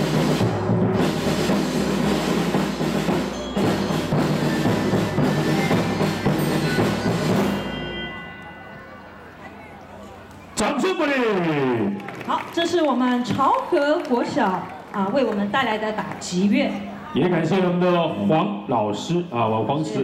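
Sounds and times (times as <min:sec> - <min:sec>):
children's percussion ensemble: 0:00.0 - 0:11.6.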